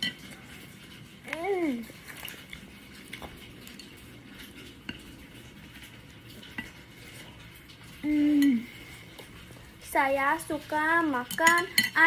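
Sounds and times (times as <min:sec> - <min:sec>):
utensils tapping plates: 0:11.2 - 0:12.0.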